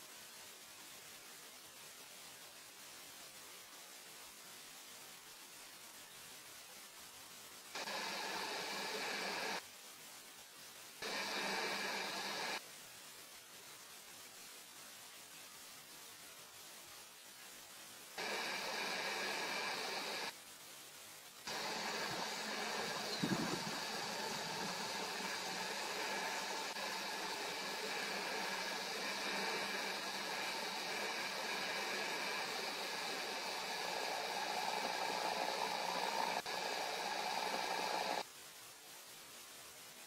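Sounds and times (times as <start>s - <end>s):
steady hissing noise: 0.0s - 40.0s
faint low hum: 21.5s - 38.2s.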